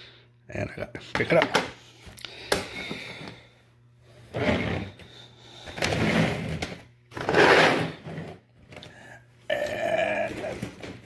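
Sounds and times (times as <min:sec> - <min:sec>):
sliding rubbing handling noises: 0:04.1 - 0:08.4.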